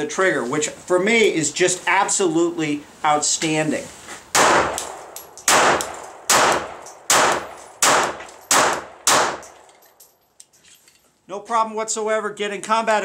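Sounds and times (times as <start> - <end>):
pistol shots: 4.3 - 9.6.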